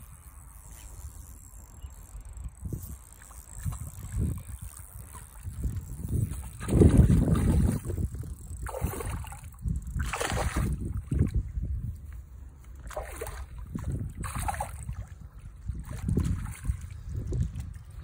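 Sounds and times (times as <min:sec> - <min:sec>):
wind rumble on microphone: 0:02.2 - 0:18.0
fish splashing at water surface: 0:08.6 - 0:11.1.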